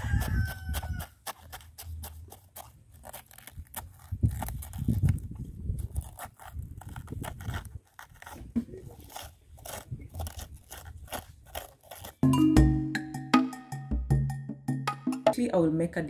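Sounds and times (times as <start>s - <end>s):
knife slicing cabbage: 0.0s - 12.3s
music: 12.2s - 16.0s.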